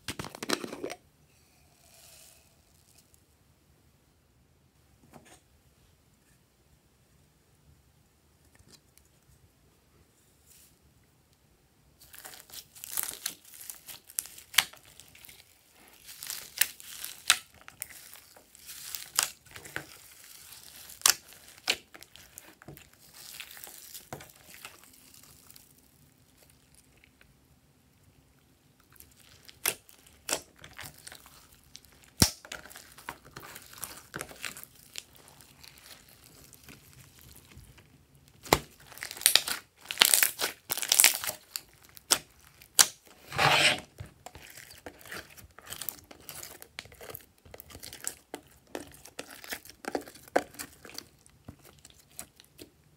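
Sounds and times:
slime squishing and crackling: 12.0 - 27.2, 28.8 - 43.3, 43.9 - 52.9.

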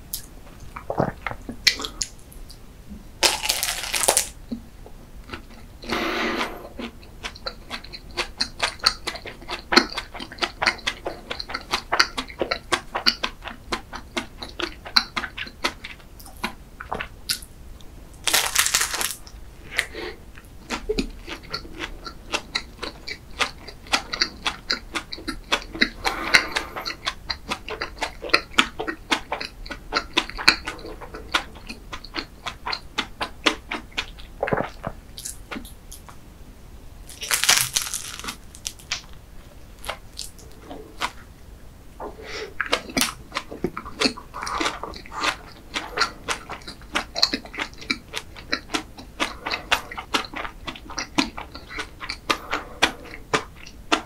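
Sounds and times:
chewing pastry: 3.2 - 17.5, 18.2 - 36.2, 37.0 - 41.3, 42.0 - 54.0
bites into pastry: 37.1 - 39.0.

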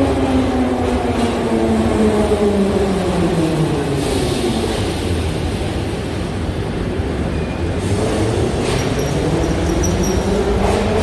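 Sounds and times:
metro train rumbling: 0.0 - 11.0
high brake squeals: 8.9 - 10.4.

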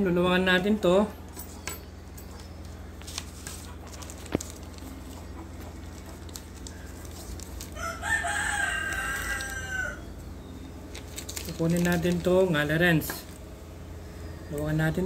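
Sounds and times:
rooster crowing: 7.7 - 10.2.

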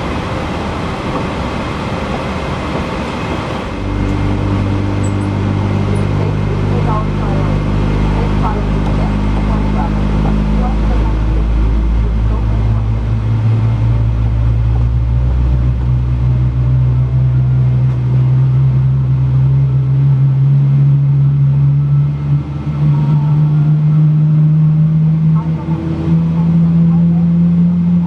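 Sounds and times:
deep rumble: 0.0 - 28.0
jet engine spooling up: 0.0 - 28.0.

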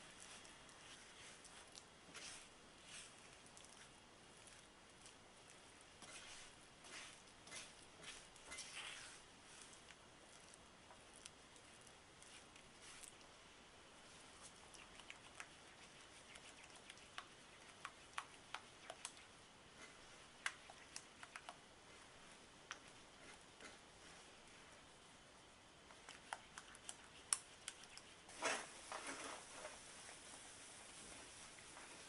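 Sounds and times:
spatula scraping a frying pan: 6.0 - 9.2.

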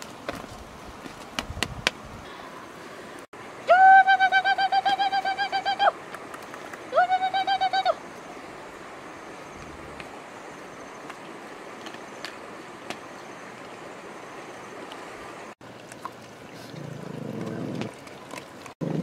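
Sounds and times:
outdoor background noise: 0.0 - 19.0.

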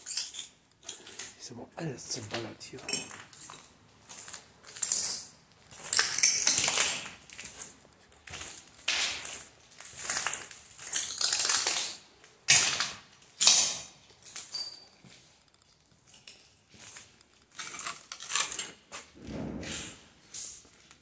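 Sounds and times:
footsteps crunching over debris: 1.8 - 13.3.

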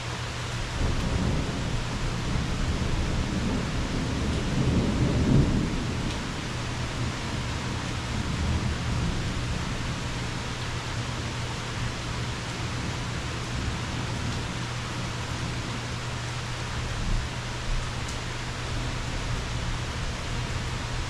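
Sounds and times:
steady rain: 0.0 - 21.0
rolling thunder: 0.6 - 15.8.

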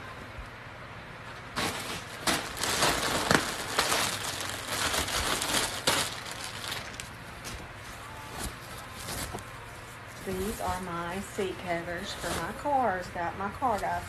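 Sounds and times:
plastic packaging crinkling: 1.5 - 13.0.

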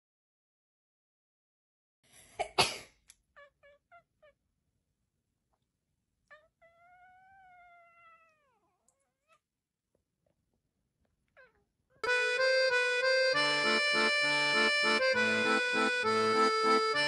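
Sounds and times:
cat chirp: 3.2 - 4.4, 6.3 - 9.5, 11.3 - 12.0
cat yawning meow: 6.3 - 9.4.

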